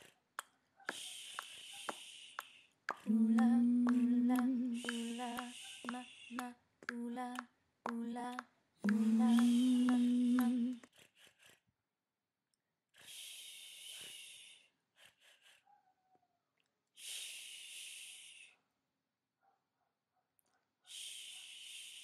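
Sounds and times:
person chanting and humming: 2.9s - 10.9s.

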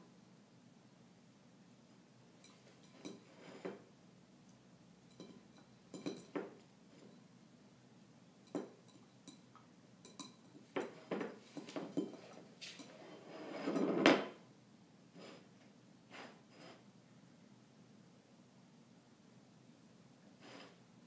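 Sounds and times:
bowl scraping slide: 3.1s - 3.8s, 10.9s - 14.4s, 15.2s - 15.5s, 16.1s - 16.9s, 20.4s - 20.8s
dog bowl clanking on wooden floor: 10.1s - 13.0s.

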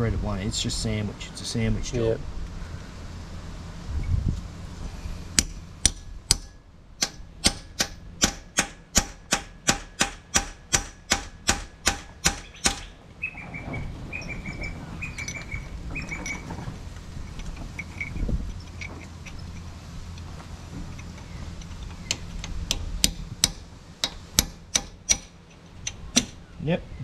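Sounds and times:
hammer striking steel tool: 5.4s - 12.9s
light metallic clinks: 15.1s - 20.3s.

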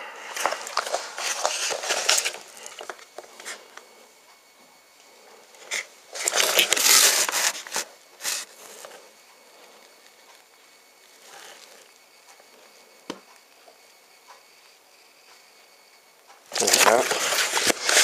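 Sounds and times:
cardboard rubbing and scraping: 5.7s - 8.5s, 16.6s - 18.0s.

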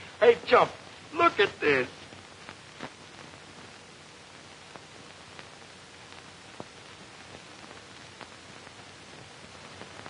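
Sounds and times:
optical film soundtrack hiss: 0.0s - 10.0s.

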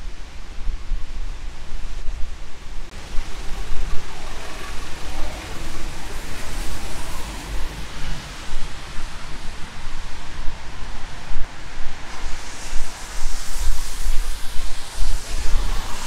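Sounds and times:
low fluttering rumble: 0.0s - 16.0s
rain hiss: 0.0s - 16.0s
tyres on wet road: 2.9s - 16.0s
vehicle passing: 3.4s - 9.8s.

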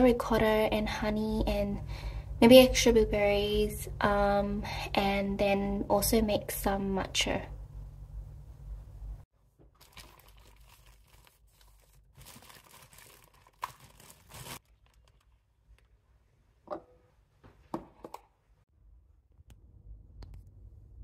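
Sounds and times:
plastic bag crinkling: 9.8s - 15.9s.

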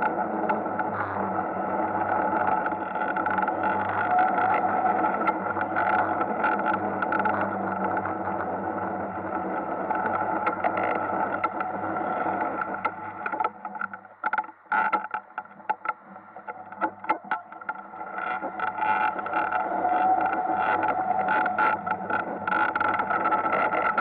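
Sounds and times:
sharp clicks and scrapes: 10.0s - 24.0s.

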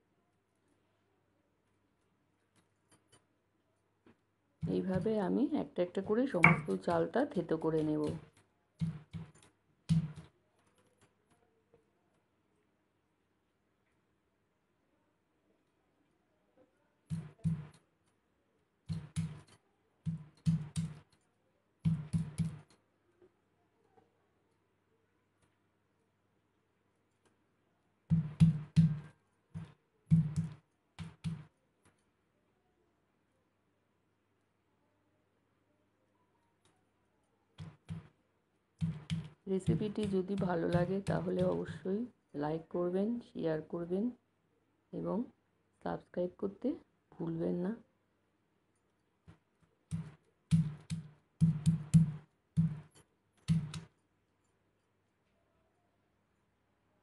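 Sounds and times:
stone pestle pounding: 6.4s - 6.7s, 28.1s - 31.5s, 38.8s - 41.5s, 49.9s - 52.9s.

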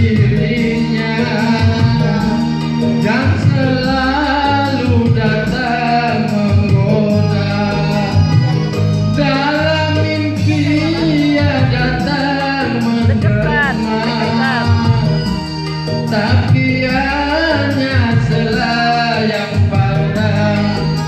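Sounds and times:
electronic keyboard with beat: 0.0s - 21.0s
man singing into a microphone: 0.0s - 21.0s.

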